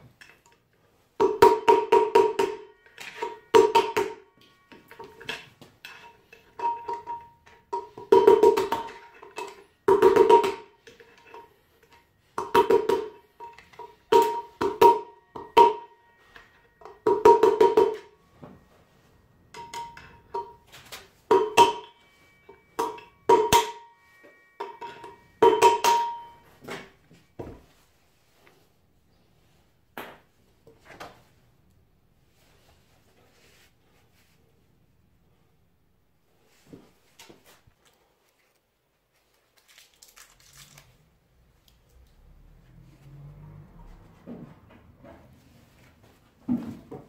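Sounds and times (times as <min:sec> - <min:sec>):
metal ringing: 0:01.2 - 0:28.4.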